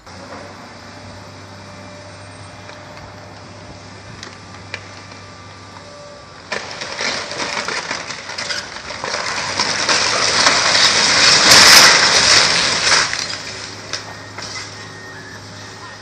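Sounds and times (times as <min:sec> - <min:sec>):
building collapsing crash: 0:06.5 - 0:14.8
timber cracking and splintering: 0:06.5 - 0:14.8.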